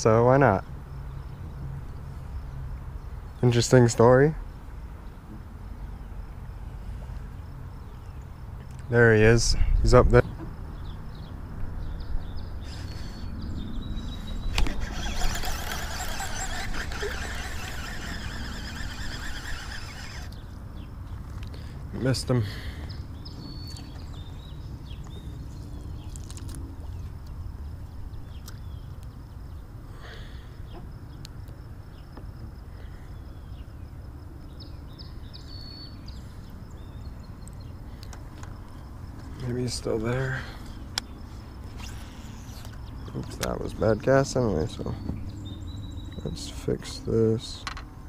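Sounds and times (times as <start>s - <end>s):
high insect drone: 5.6s - 21.0s, 26.9s - 48.0s
bird chirps: 10.3s - 21.7s, 34.5s - 38.0s, 45.0s - 46.6s
fishing reel spool whirring: 12.6s - 20.5s, 41.6s - 42.8s
fishing reel click: 14.5s - 20.4s.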